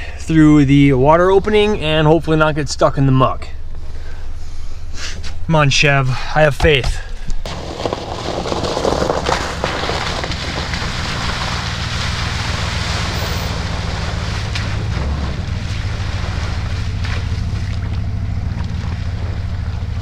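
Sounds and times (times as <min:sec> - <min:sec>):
truck engine running: 0:06.7 - 0:20.0
water splashing around tyres: 0:07.4 - 0:20.0.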